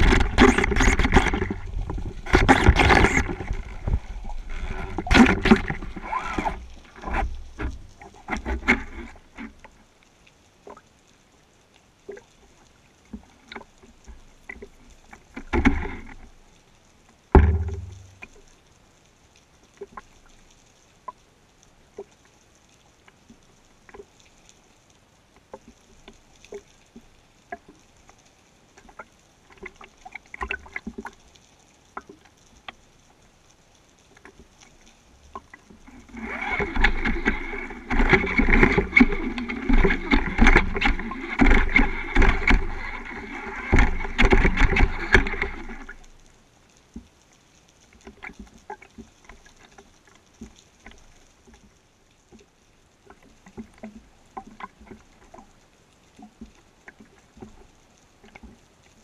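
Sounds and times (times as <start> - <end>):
pulsing underwater rumble: 0.0 - 9.4, 17.3 - 18.4, 35.2 - 46.3
faint underwater clicks: 0.0 - 59.0.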